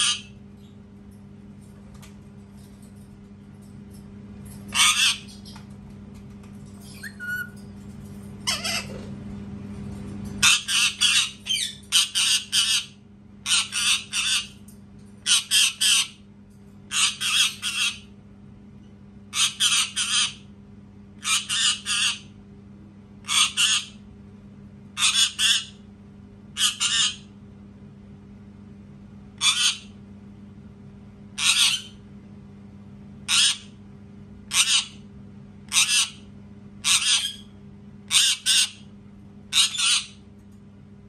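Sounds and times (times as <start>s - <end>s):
parakeet screeching: 0.0s - 0.4s, 4.7s - 5.6s, 6.8s - 7.6s, 8.4s - 9.0s, 10.4s - 14.6s, 15.2s - 16.2s, 16.9s - 18.1s, 19.3s - 20.5s, 21.2s - 22.3s, 23.2s - 24.0s, 25.0s - 25.8s, 26.6s - 27.3s, 29.4s - 30.0s, 31.4s - 32.0s, 33.3s - 33.8s, 34.5s - 35.0s, 35.7s - 37.5s, 38.1s - 38.9s, 39.5s - 40.2s.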